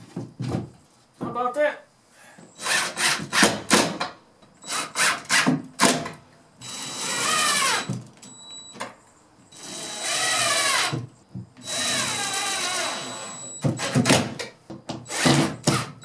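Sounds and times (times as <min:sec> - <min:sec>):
cordless drill driving screws: 0:06.6 - 0:07.9, 0:09.6 - 0:11.0, 0:11.6 - 0:14.1, 0:15.1 - 0:15.9.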